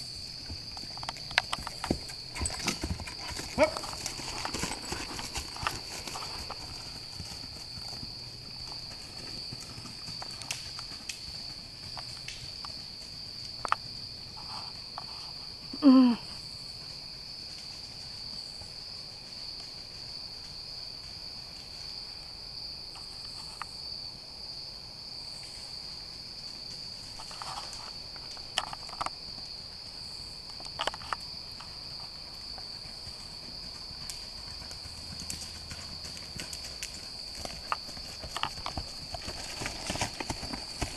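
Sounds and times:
insect chirring: 0:00.0 - 0:40.9.

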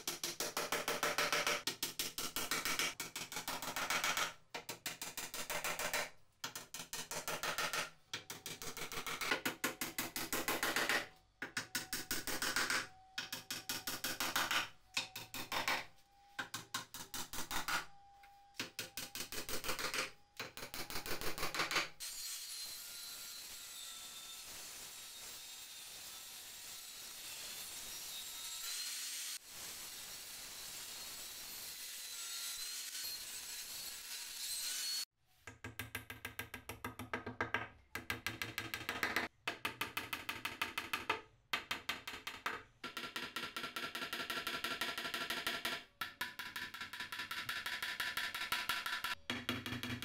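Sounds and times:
hammer strikes on wood: 0:00.1 - 0:17.8, 0:35.5 - 0:50.0
table saw cutting a board: 0:22.0 - 0:35.1.

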